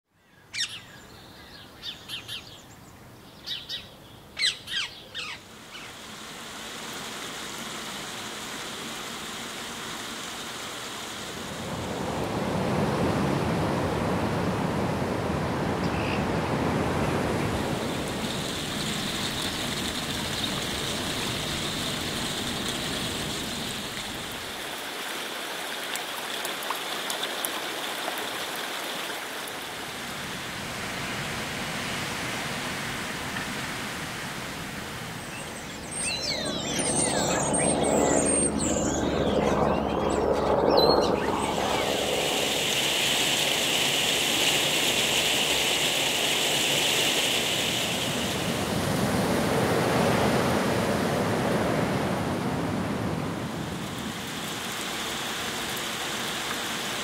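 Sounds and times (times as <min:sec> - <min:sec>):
steady background hiss: 0:00.8 - 0:11.7
rush of noise: 0:05.9 - 0:24.7, 0:30.2 - 0:57.0.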